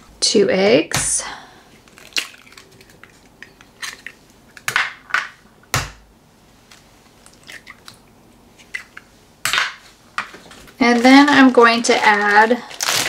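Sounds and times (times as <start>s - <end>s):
eggs cracking on bowl: 1.8s - 6.0s.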